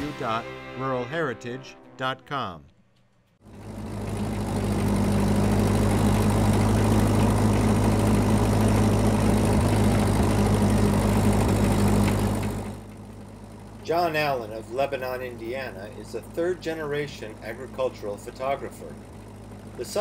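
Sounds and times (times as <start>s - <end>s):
tractor engine running: 3.4s - 20.0s.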